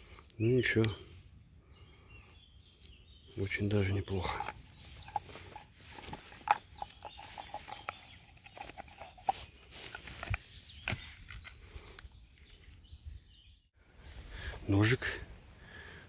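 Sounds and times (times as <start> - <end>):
knife scraping into plastic sheath: 4.3 - 12.0.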